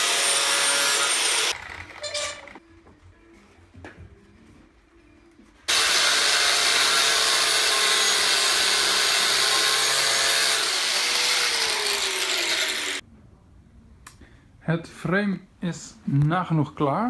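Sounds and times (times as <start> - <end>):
angle grinder grinding steel: 0.0 - 2.6, 5.7 - 13.0
grinder disc winding down: 5.7 - 13.0.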